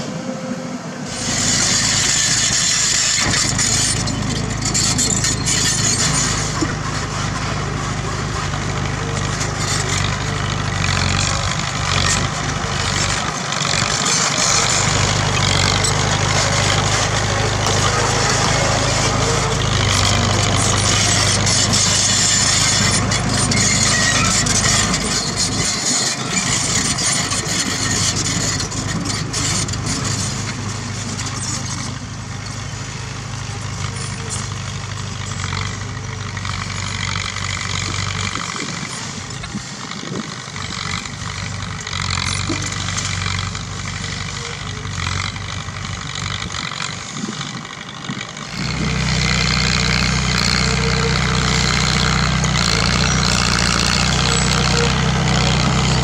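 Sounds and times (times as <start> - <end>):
bulldozer diesel engine under load: 0.0 - 56.0.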